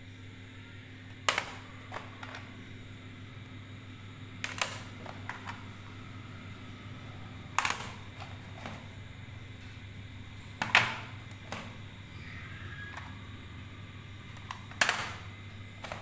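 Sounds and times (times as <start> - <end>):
steady low hum: 0.0 - 16.0
plastic cassette cases clacking: 4.4 - 5.7, 7.5 - 8.8.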